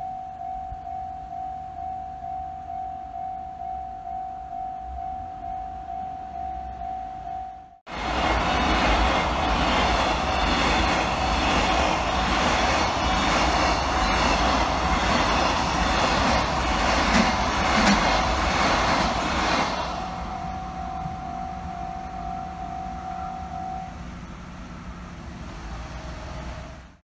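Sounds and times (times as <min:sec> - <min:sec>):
crossing warning bell: 0:00.0 - 0:18.8, 0:19.7 - 0:26.8
train wheels rumbling on rails: 0:07.9 - 0:27.0
sharp rail clacks: 0:13.4 - 0:19.8.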